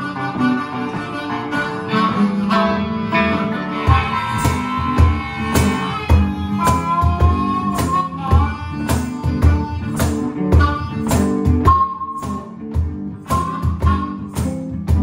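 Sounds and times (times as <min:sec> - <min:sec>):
electric guitar: 0:00.0 - 0:15.0
harmonica playing: 0:00.0 - 0:15.0
cajon thumps and slaps: 0:03.8 - 0:15.0.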